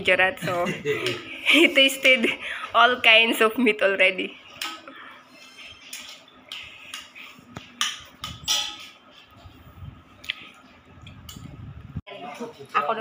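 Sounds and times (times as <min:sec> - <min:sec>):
spoons clinking on steel plates: 0:04.5 - 0:09.3.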